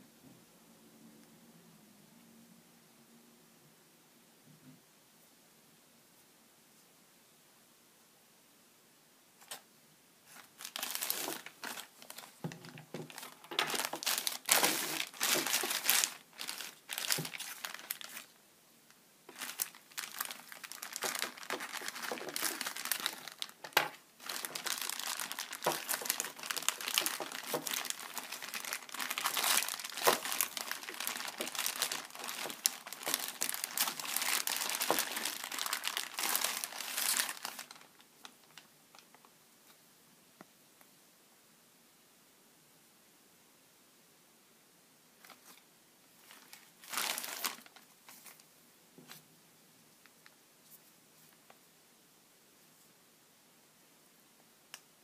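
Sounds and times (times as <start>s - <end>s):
plastic bags crinkling: 10.3s - 18.4s, 19.3s - 39.2s, 46.2s - 48.4s.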